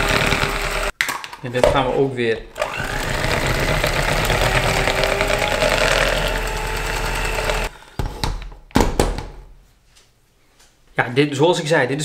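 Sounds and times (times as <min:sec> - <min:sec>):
electric hand mixer running: 0:00.0 - 0:00.9, 0:02.6 - 0:07.7.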